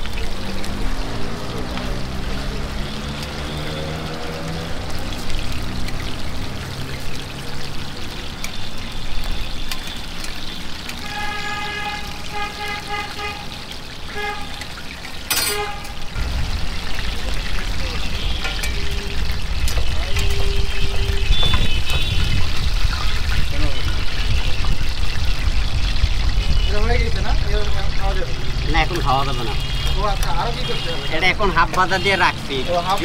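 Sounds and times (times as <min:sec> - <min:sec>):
meat sizzling in hot oil: 0:00.0 - 0:33.0
vehicle horn short beeps: 0:15.4 - 0:16.0, 0:20.2 - 0:22.3
engine rumbling past: 0:15.8 - 0:21.2
tongs clicking against pan: 0:18.4 - 0:18.9.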